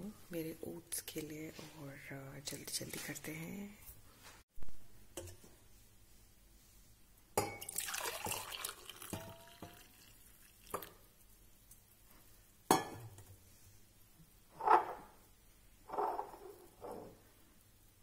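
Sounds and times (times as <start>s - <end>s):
liquid pouring into mug: 7.6s - 11.0s.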